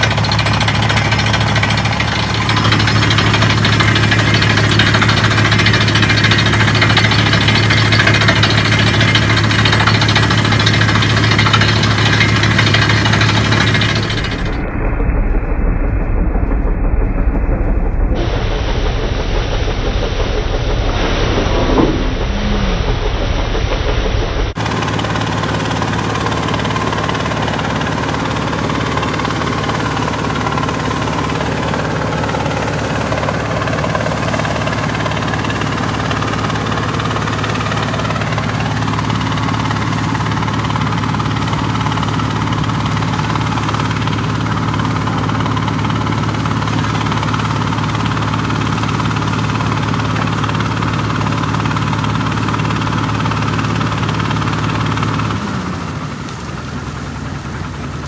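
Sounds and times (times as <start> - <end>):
drilling rig engine humming: 0.0 - 58.0.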